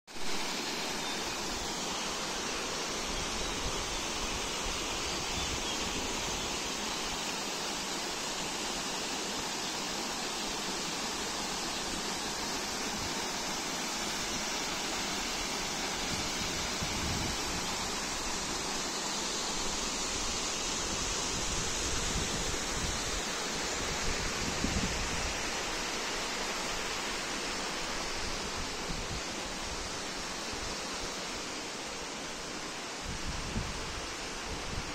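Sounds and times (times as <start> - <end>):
waterfall rushing: 0.2 - 34.9
wind rumble on microphone: 33.0 - 34.9.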